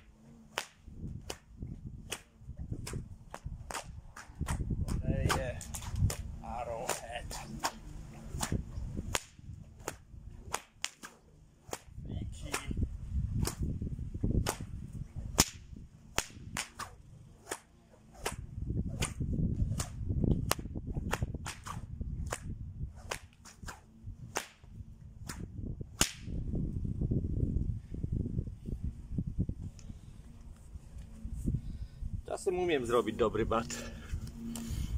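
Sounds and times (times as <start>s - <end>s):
whip cracking: 0.4s - 13.8s, 14.4s - 26.4s.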